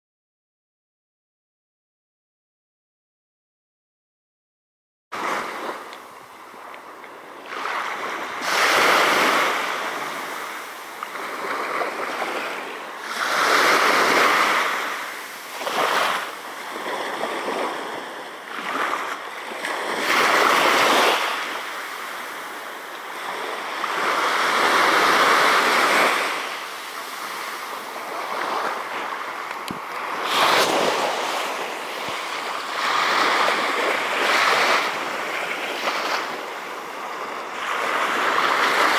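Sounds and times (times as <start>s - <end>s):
small waves washing on sand: 5.2s - 38.9s.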